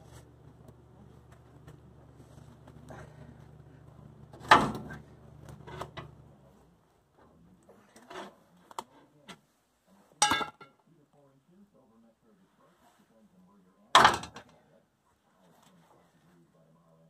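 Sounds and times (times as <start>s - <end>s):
steady low hum: 0.0s - 8.0s.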